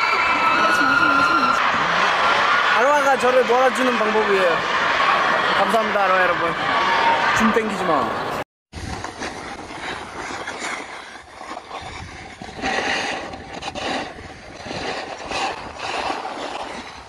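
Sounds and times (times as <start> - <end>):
wind on microphone: 8.7 - 17.0
snowboards scraping on snow: 8.8 - 17.0.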